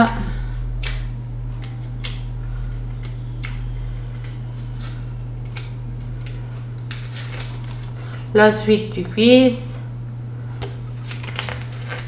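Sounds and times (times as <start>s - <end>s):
low electrical hum: 0.0s - 12.0s
paper pages turning: 2.9s - 8.0s, 10.6s - 12.0s.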